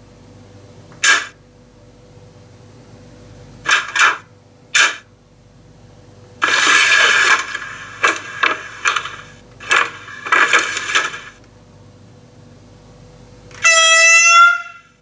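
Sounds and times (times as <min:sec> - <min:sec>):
electronic locomotive horn toots: 0:13.6 - 0:15.0.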